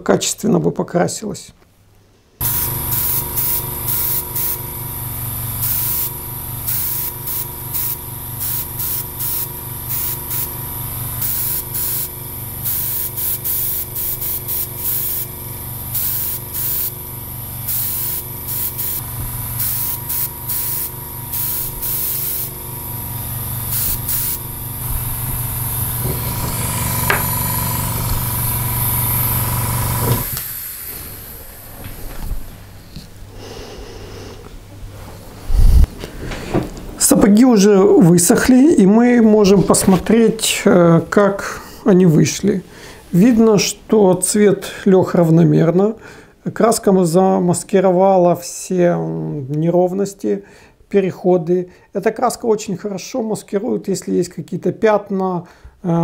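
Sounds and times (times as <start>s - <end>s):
airbrush spraying hiss: 2.4s - 32.5s
steady hum: 2.4s - 41.1s.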